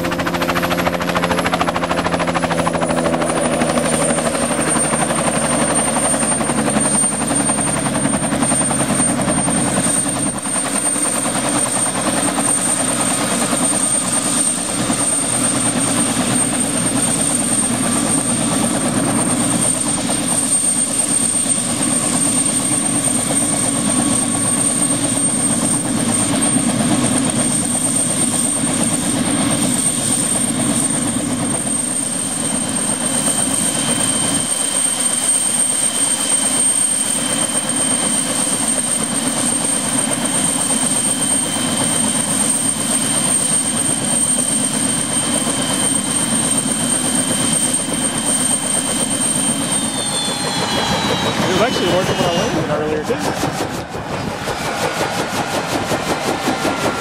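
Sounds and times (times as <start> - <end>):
helicopter engine and rotors: 0.0 - 57.0
high steady whine: 49.4 - 57.0.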